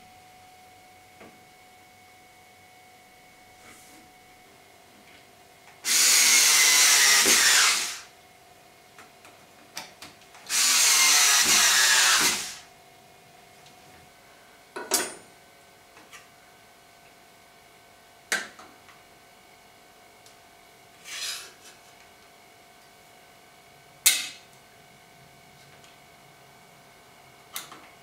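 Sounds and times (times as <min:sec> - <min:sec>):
cordless drill whining: 0:05.8 - 0:08.1, 0:10.5 - 0:12.6.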